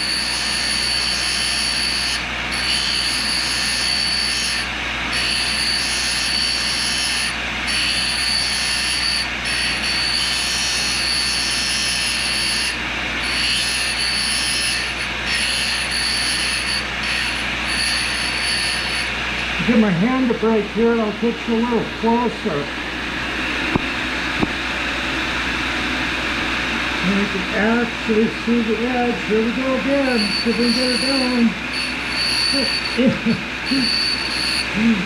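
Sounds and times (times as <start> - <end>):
grinding wheel sharpening a cutter: 0.0 - 19.5, 29.9 - 34.8.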